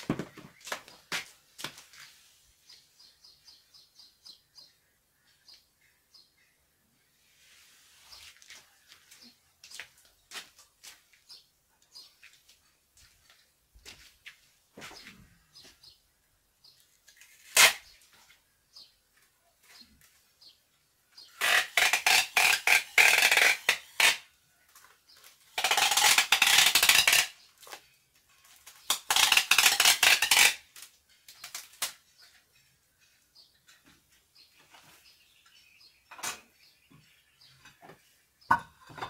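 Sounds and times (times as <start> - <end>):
packing tape ripping: 17.3 - 17.9, 21.4 - 24.3, 25.5 - 27.8, 28.6 - 32.0.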